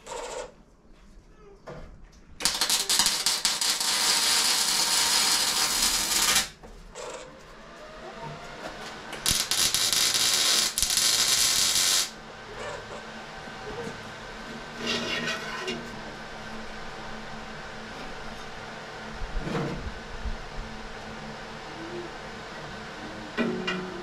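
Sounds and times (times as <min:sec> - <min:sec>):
arc welding crackling: 0:02.4 - 0:06.6, 0:09.1 - 0:12.2.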